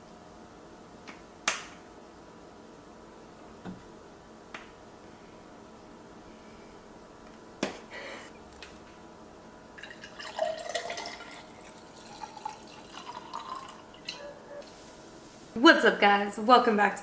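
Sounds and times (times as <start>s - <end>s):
wine pouring into a glass: 9.8s - 14.2s.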